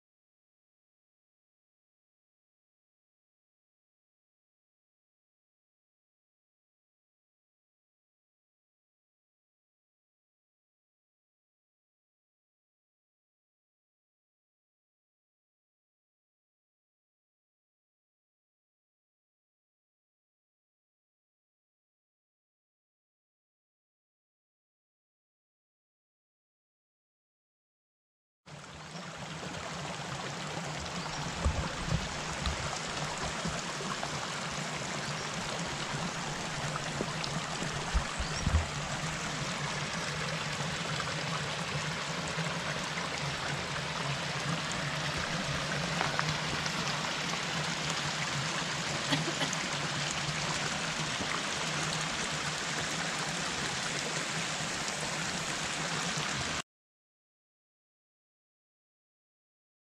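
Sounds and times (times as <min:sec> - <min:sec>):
stream flowing: 0:28.5 - 0:56.6
short low thumps: 0:31.2 - 0:33.4, 0:36.8 - 0:39.2.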